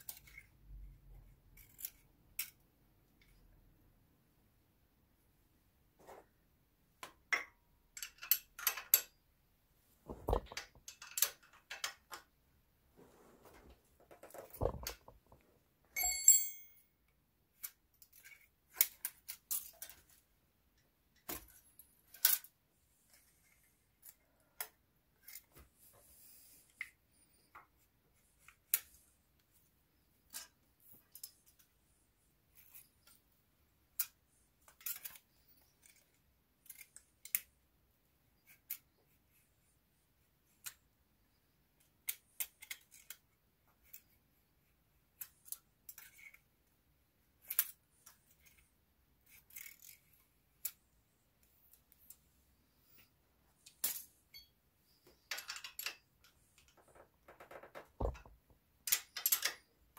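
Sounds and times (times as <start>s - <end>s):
ringing metal clink: 16.0s - 16.9s.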